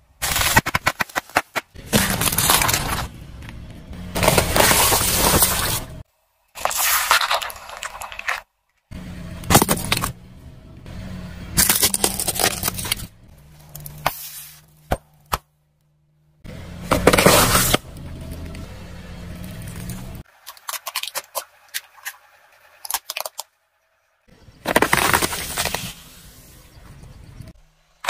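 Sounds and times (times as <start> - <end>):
tyre crushing snack packets: 0.2 - 3.2, 4.1 - 6.0, 11.6 - 13.1, 24.7 - 26.0.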